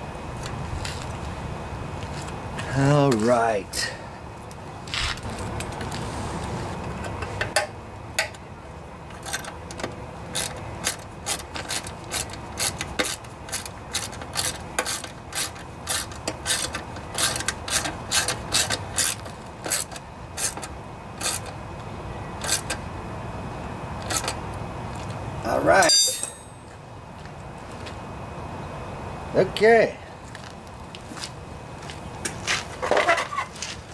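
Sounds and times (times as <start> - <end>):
ratchet wrench clicking: 10.3 - 21.6, 22.4 - 22.8.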